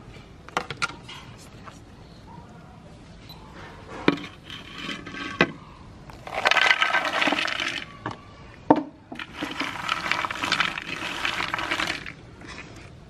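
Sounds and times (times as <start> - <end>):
cookies clattering onto ceramic plate: 6.2 - 7.9, 9.1 - 12.7.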